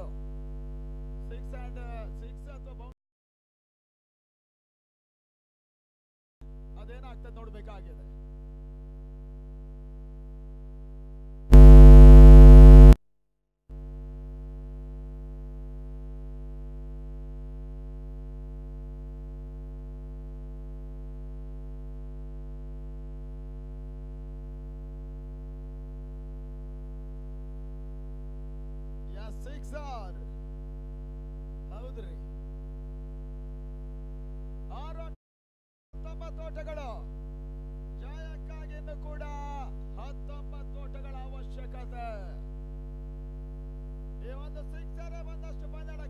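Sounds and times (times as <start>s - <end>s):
electrical mains buzz: 11.5s - 13.0s, 21.1s - 29.0s, 42.5s - 44.2s.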